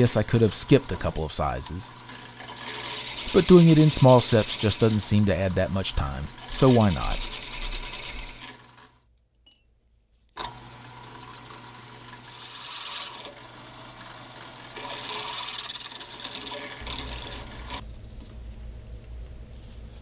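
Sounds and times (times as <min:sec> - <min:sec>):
drill press drilling into metal: 0:02.0 - 0:05.1, 0:06.3 - 0:08.9, 0:10.4 - 0:17.8.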